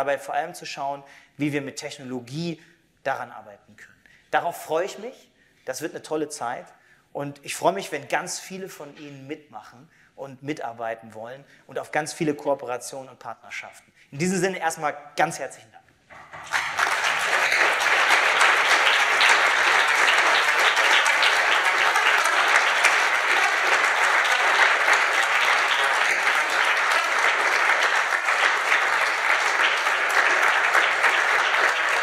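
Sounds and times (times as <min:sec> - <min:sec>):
audience applauding: 0:16.1 - 0:32.0.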